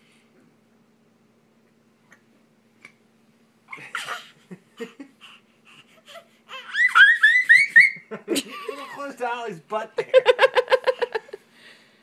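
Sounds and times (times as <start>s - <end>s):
baby squealing: 6.1s - 8.0s.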